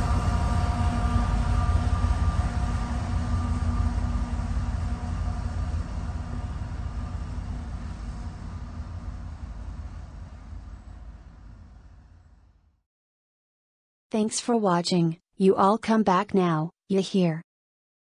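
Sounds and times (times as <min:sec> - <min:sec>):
locomotive engine rumble: 0:00.0 - 0:12.2
locomotive whine: 0:00.0 - 0:12.6.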